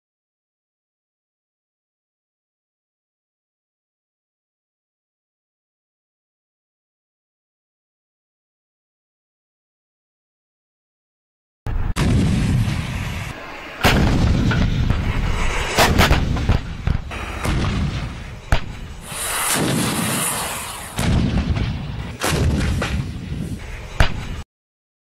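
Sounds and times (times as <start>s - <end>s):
artillery blasts with low rumble: 11.7s - 24.4s.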